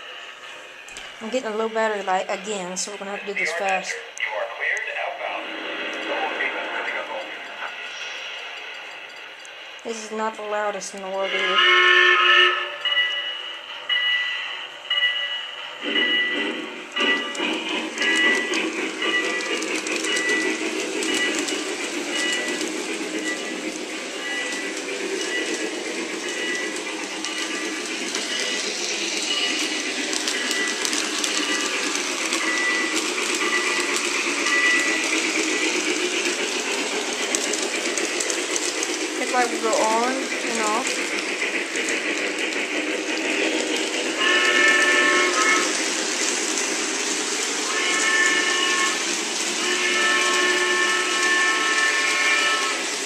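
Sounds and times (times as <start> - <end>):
model train motor and wheels: 0.0 - 53.0
toy train steam whistle blasts: 11.1 - 15.1, 44.2 - 46.0, 47.6 - 53.0
steam sound effects from speaker: 39.1 - 43.4.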